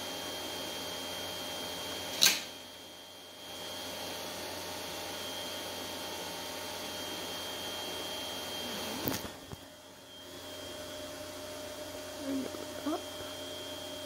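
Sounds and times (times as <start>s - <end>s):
electrical hum: 0.0s - 14.0s
sharp click: 2.1s - 2.5s.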